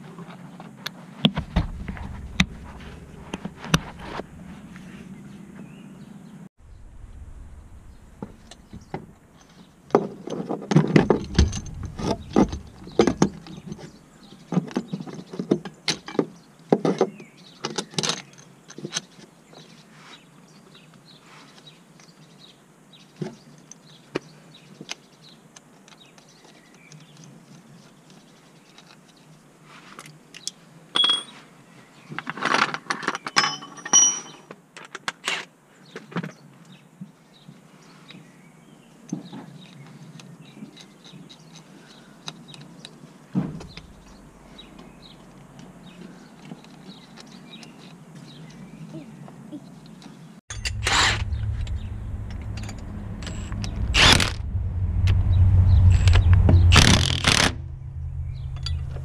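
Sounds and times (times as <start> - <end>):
metal tools clinking: 31.0 - 31.4, 33.1 - 34.5, 50.5 - 51.2, 52.4 - 53.7.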